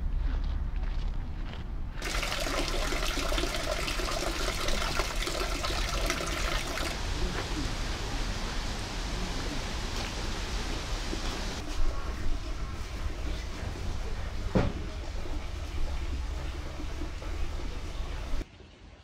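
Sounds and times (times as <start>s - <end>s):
water trickling into pool: 2.0s - 9.0s.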